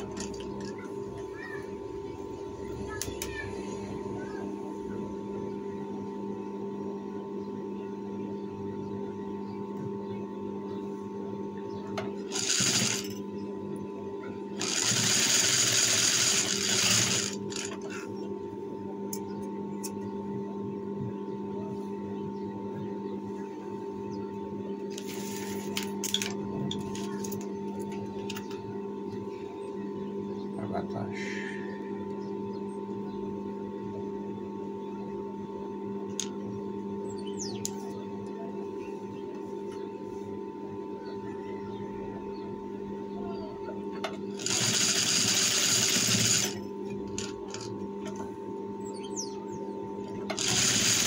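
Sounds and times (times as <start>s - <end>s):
sewing machine motor hum: 0.0s - 1.3s, 12.0s - 13.4s, 14.5s - 18.2s, 24.9s - 27.2s, 44.1s - 48.2s, 50.0s - 51.0s
sewing machine stitching: 12.3s - 13.1s, 14.6s - 17.9s, 44.4s - 46.6s, 50.3s - 51.0s.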